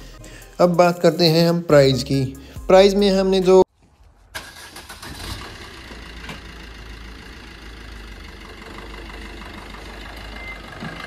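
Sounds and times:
car engine idling: 4.5s - 11.0s.

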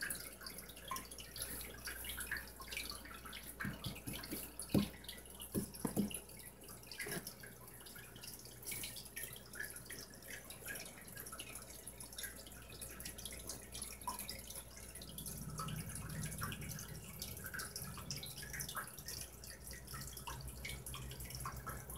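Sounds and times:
low steady hum: 0.0s - 21.9s
water dripping and trickling: 0.0s - 21.9s
soft knocks: 3.6s - 6.2s.

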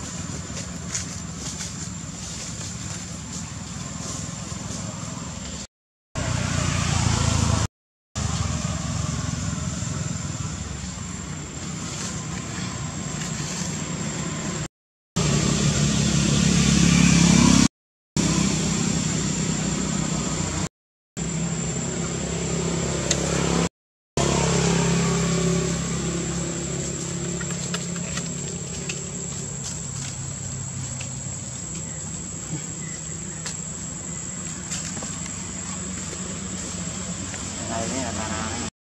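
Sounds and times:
vehicle engine humming: 0.0s - 38.7s
high-pitched whine: 15.2s - 30.2s.

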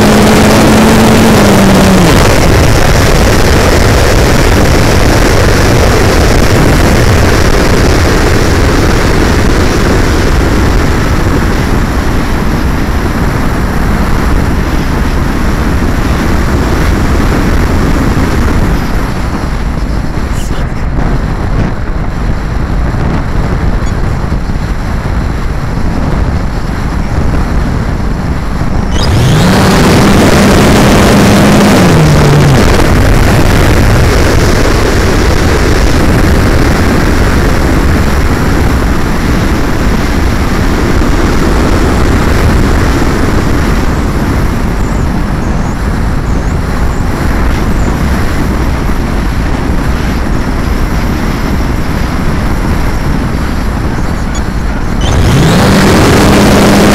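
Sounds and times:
electric motor whine: 0.0s - 21.7s, 28.6s - 37.6s, 52.4s - 56.9s.

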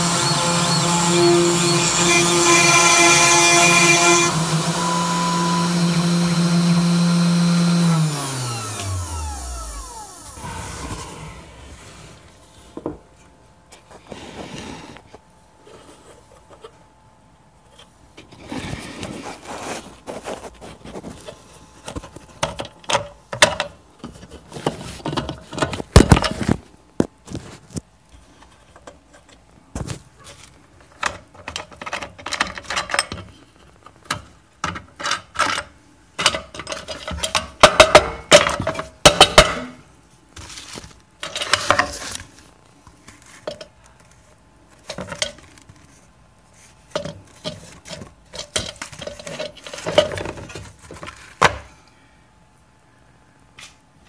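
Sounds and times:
plastic parts clinking on metal: 41.2s - 42.3s, 46.9s - 51.5s.

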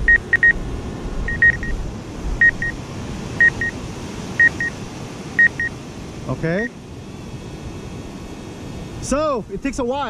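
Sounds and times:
double beeps from remote controller: 0.0s - 0.6s, 1.3s - 1.8s, 2.4s - 2.8s, 3.4s - 3.8s, 4.4s - 4.8s, 5.4s - 5.7s
wind: 0.0s - 10.0s.

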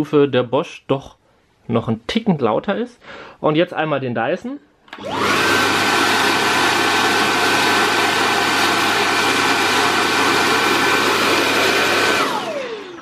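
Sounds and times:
vacuum cleaner running: 4.9s - 13.0s.

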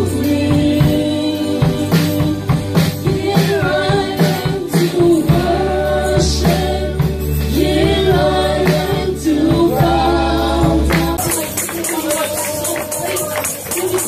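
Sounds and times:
woman singing gospel: 0.0s - 14.0s
electric keyboard with beat: 7.0s - 14.0s.

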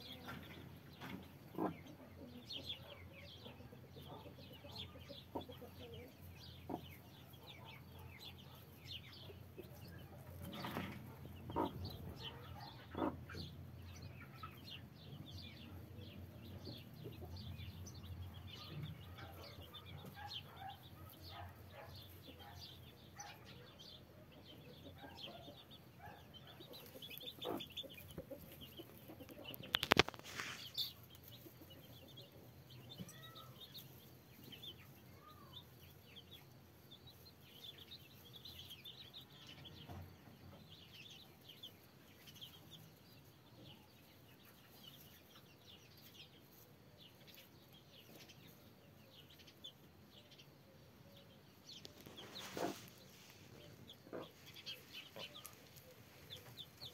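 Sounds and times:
hen clucking: 0.0s - 14.8s, 23.2s - 34.6s, 51.8s - 56.9s
chicks peeping: 0.0s - 56.9s.

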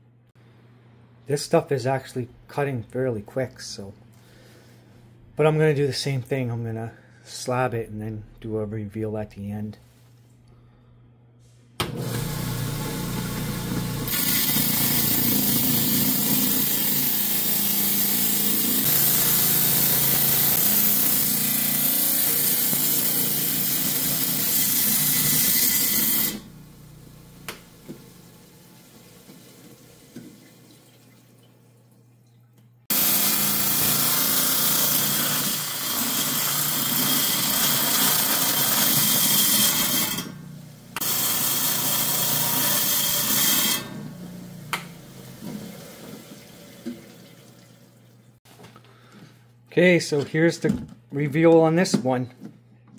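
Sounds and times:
saw motor: 11.8s - 29.1s, 32.9s - 46.4s
wet saw cutting stone: 12.1s - 26.5s, 32.9s - 40.4s, 41.0s - 46.0s.

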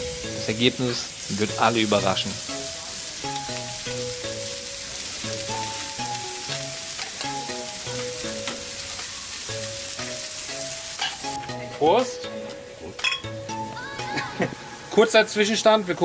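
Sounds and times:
meat sizzling on a grill: 0.0s - 16.0s
melody of held notes: 0.0s - 16.0s.

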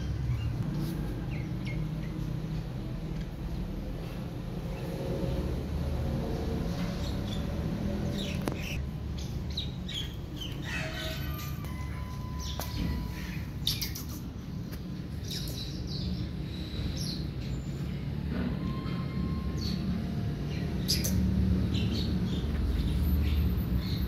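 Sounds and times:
small birds chirping: 0.0s - 3.0s, 6.7s - 18.1s, 19.6s - 24.0s.

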